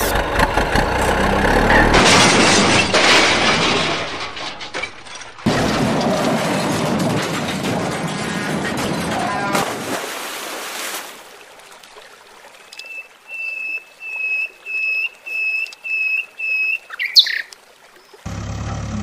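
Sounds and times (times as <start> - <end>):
water splash: 9.5 - 13.2
faint running water: 9.6 - 18.3.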